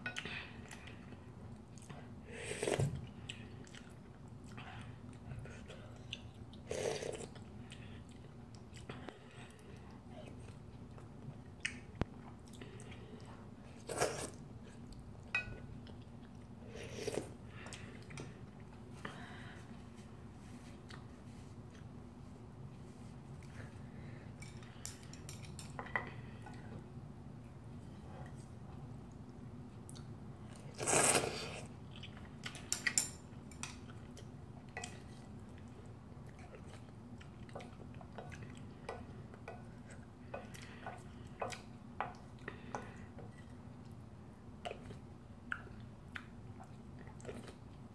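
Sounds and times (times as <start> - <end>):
quiet chewing: 0.1 - 22.0, 29.0 - 44.0, 44.6 - 47.9
person slurping noodles: 30.7 - 31.7.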